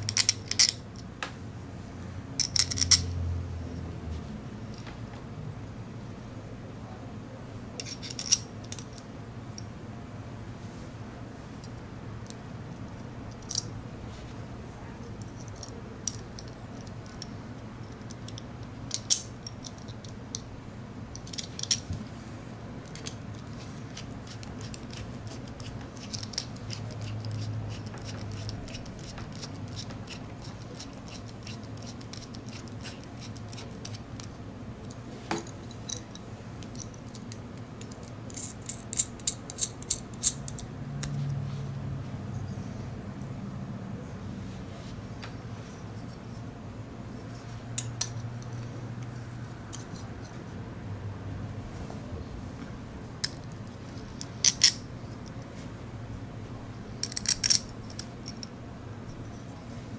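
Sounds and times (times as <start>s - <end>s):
metal parts clicking and clattering: 0.0s - 1.0s, 2.4s - 3.1s, 7.8s - 9.0s, 21.1s - 21.9s, 22.8s - 40.7s, 53.2s - 55.4s, 57.0s - 58.5s.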